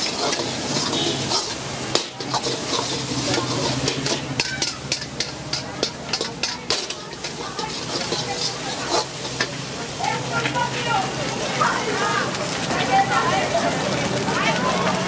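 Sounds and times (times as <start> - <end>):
ladle scraping and clanking on wok: 0.0 - 10.6
food sizzling: 0.0 - 15.0.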